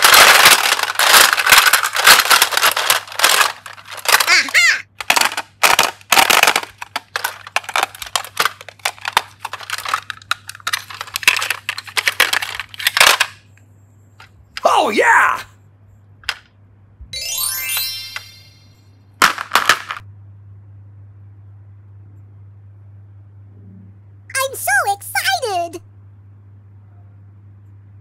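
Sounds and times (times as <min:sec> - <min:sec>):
plastic cases clattering: 0:00.0 - 0:13.4, 0:19.2 - 0:20.0.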